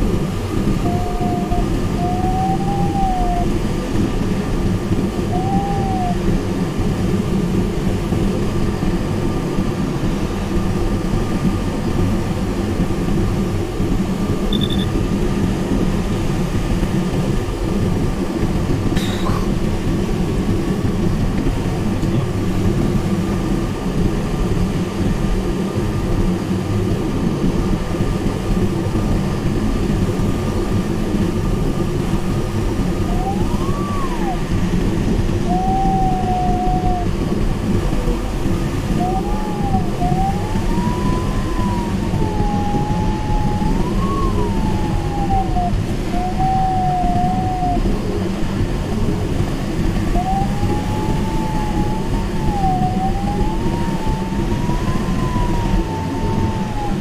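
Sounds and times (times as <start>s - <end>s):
airflow rushing around canopy: 0.0s - 57.0s
variometer tone sliding in pitch: 0.6s - 4.2s, 14.5s - 14.9s, 32.8s - 38.2s, 38.8s - 48.2s, 50.0s - 57.0s.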